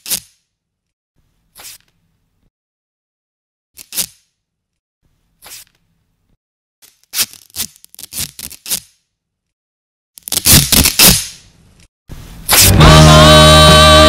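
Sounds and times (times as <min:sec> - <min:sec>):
tape scratching on nylon jacket: 0:00.0 - 0:00.5, 0:01.5 - 0:01.9, 0:03.8 - 0:04.4, 0:05.4 - 0:05.8, 0:06.8 - 0:09.1, 0:10.2 - 0:11.3, 0:12.5 - 0:12.8.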